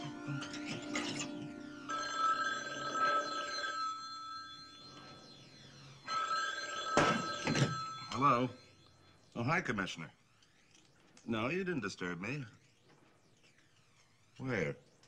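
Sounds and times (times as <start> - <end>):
background music: 0.0 - 3.6
telephone bell ringing: 0.0 - 9.3.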